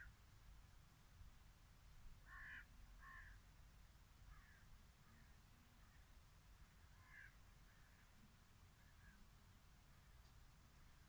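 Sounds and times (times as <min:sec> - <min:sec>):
distant bird calling: 0:02.2 - 0:03.4, 0:04.3 - 0:11.0.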